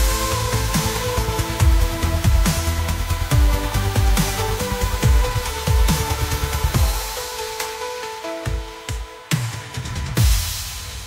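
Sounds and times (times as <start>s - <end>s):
deep bass hits: 0.0s - 7.2s
electronic music with beat: 0.0s - 11.0s.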